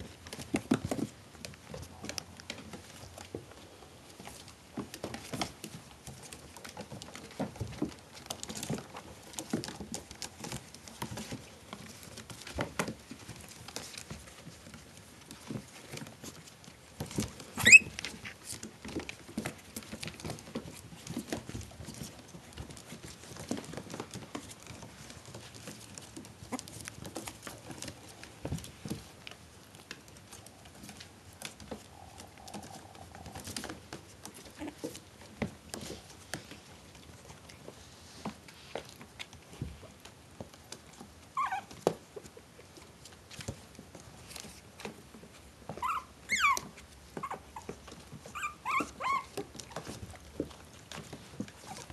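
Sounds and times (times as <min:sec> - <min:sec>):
puppies scratching and rustling: 0:00.0 - 0:51.9
puppy yelping: 0:17.6 - 0:18.0, 0:41.4 - 0:41.8, 0:45.8 - 0:49.9.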